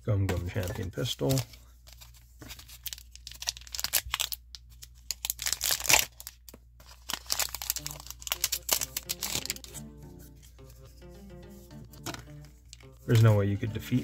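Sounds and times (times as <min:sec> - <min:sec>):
foil wrapper crinkling and tearing: 0:00.5 - 0:09.8, 0:12.3 - 0:13.4
cards sliding out of wrapper: 0:05.1 - 0:09.8.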